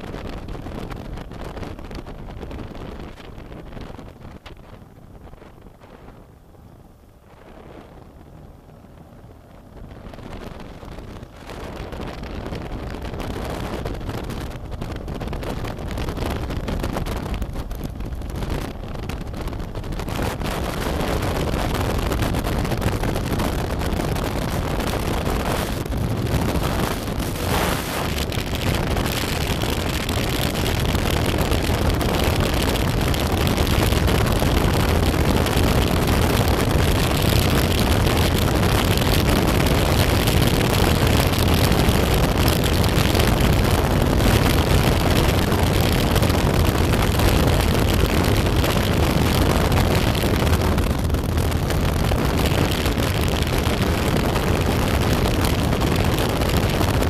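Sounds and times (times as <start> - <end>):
wind noise on microphone: 0.0 - 57.0.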